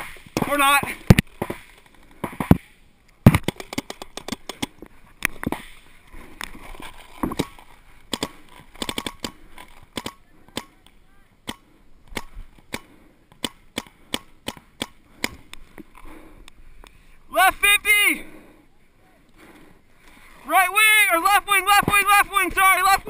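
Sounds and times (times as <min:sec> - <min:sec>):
paintball markers firing: 0:00.0 - 0:04.8, 0:07.3 - 0:15.6.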